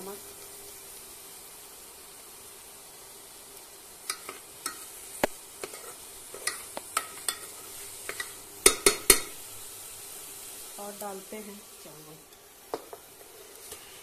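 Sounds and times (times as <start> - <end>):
vegetables sizzling in oil: 0.0 - 14.0
spoon clinking and scraping pot: 4.1 - 4.9, 5.6 - 9.4.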